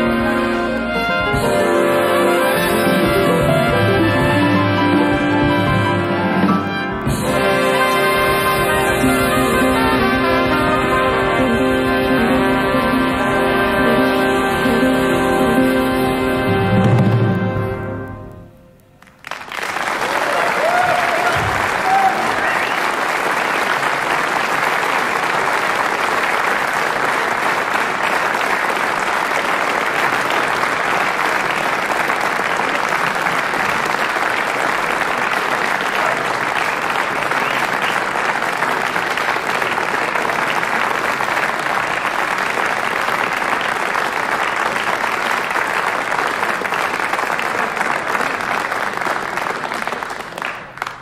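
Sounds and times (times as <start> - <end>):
audience applauding: 17.9 - 51.0.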